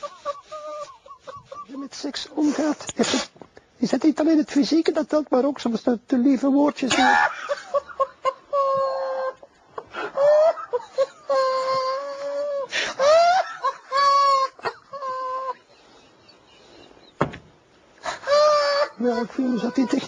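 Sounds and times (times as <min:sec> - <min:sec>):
man laughing in squeals: 0:00.0 - 0:02.7, 0:06.9 - 0:17.2, 0:18.0 - 0:20.0.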